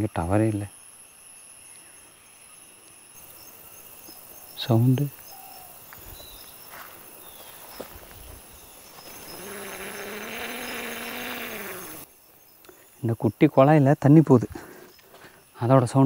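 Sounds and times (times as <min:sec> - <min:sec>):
insects chirping: 0:00.0 - 0:16.0.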